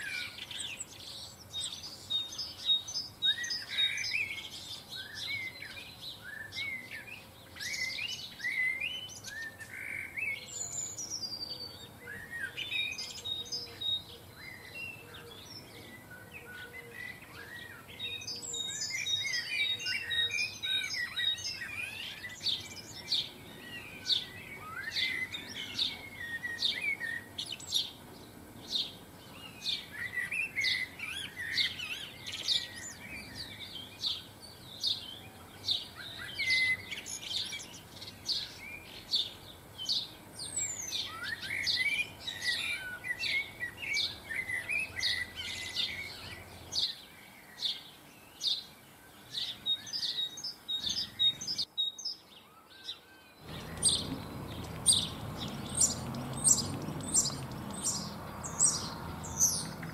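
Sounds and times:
songbirds twittering and chirping: 0:00.0 - 0:59.9.

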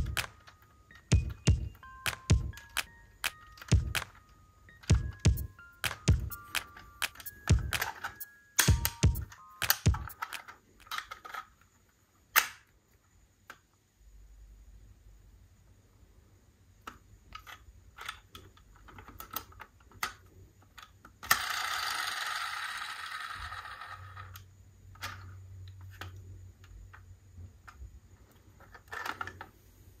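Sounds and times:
model cars clicking and rattling: 0:10.2 - 0:11.6, 0:17.3 - 0:26.1, 0:28.6 - 0:29.5.

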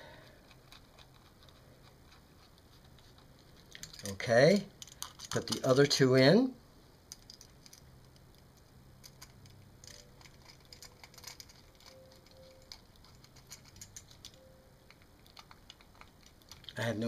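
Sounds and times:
light metallic rattles: 0:07.1 - 0:17.0.

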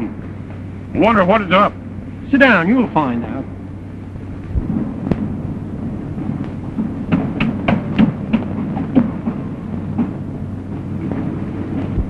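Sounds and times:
film soundtrack hiss: 0:00.0 - 0:12.0
low mains hum: 0:00.0 - 0:12.0
irregular knocks: 0:04.6 - 0:12.0.

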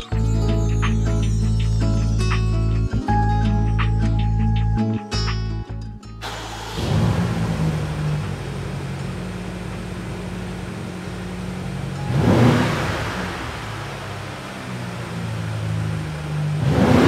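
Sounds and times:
car engine idling: 0:06.2 - 0:17.0
engine rev blip: 0:06.2 - 0:17.0.

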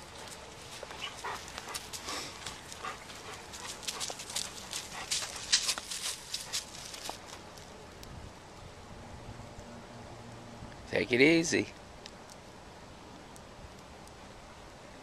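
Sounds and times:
footsteps crunching on dry leaves: 0:00.0 - 0:07.4
scuffs and rustles: 0:00.0 - 0:07.7.

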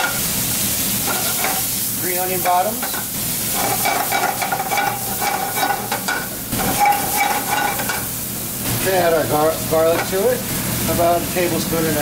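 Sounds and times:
sausage sizzling in butter: 0:00.0 - 0:12.0
utensil clicking and scraping pan: 0:03.6 - 0:08.1.

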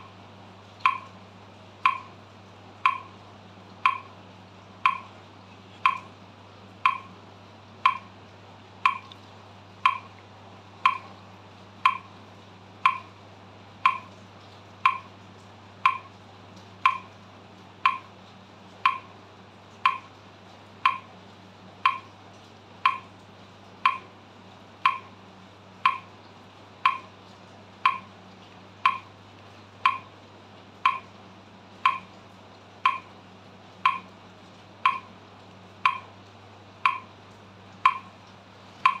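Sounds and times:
metronome clicking: 0:00.8 - 0:01.2, 0:01.8 - 0:02.2, 0:02.8 - 0:03.2, 0:03.8 - 0:04.1, 0:04.8 - 0:05.1, 0:05.8 - 0:06.1, 0:06.8 - 0:07.2, 0:07.8 - 0:08.1, 0:08.8 - 0:09.2, 0:09.8 - 0:10.2, 0:10.8 - 0:11.1, 0:11.8 - 0:12.1, 0:12.8 - 0:13.1, 0:13.8 - 0:14.1, 0:14.8 - 0:15.1, 0:15.8 - 0:16.1, 0:16.8 - 0:17.1, 0:17.8 - 0:18.1, 0:18.8 - 0:19.1, 0:19.8 - 0:20.1, 0:20.8 - 0:21.1, 0:21.8 - 0:22.1, 0:22.8 - 0:23.1, 0:23.8 - 0:24.1, 0:24.8 - 0:25.2, 0:25.8 - 0:26.1, 0:26.8 - 0:27.1, 0:27.8 - 0:28.1, 0:28.8 - 0:29.1, 0:29.8 - 0:30.1, 0:30.8 - 0:31.1, 0:31.8 - 0:32.1, 0:32.8 - 0:33.1, 0:33.8 - 0:34.2, 0:34.8 - 0:35.1, 0:35.8 - 0:36.1, 0:36.8 - 0:37.1, 0:37.8 - 0:38.2.

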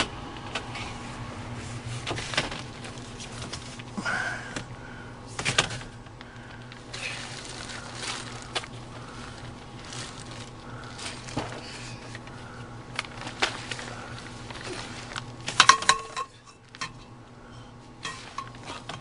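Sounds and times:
steady low hum: 0:00.0 - 0:19.0
rustling on plastic sheeting: 0:00.7 - 0:04.0, 0:05.4 - 0:15.7.

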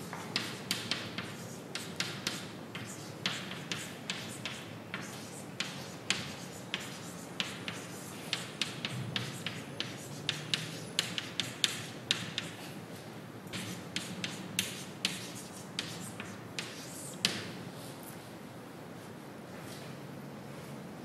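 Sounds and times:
chalk tapping on blackboard: 0:00.1 - 0:12.7, 0:13.5 - 0:17.5.

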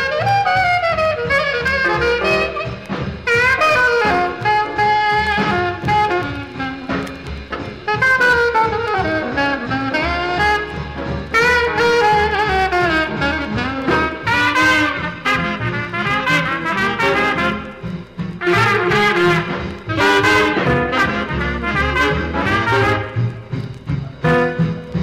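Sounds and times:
rhythm section: 0:00.0 - 0:25.0
saxophone and brass horns: 0:00.0 - 0:25.0.

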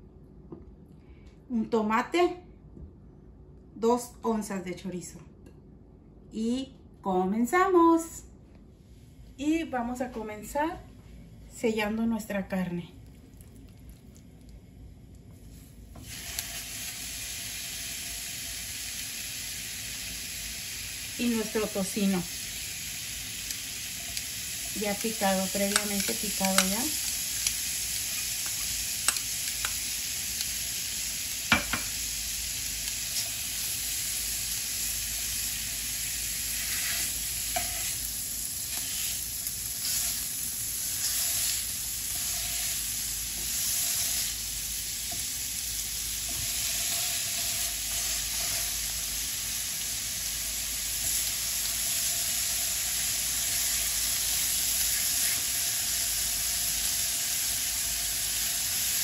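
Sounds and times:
meat sizzling in a frying pan: 0:16.0 - 0:59.0.

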